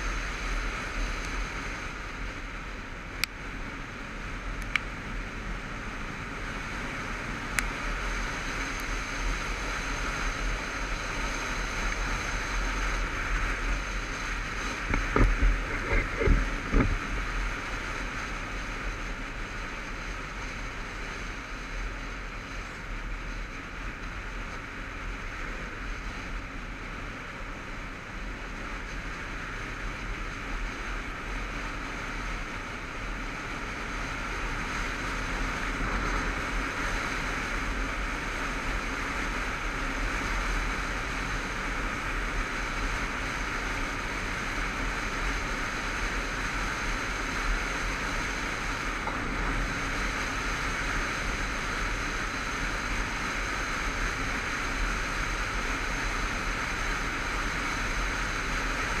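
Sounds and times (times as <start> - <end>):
motorcycle engine and road rumble: 0.0 - 59.0
wind roaring over microphone: 0.0 - 59.0
wind buffets on microphone: 13.0 - 17.9.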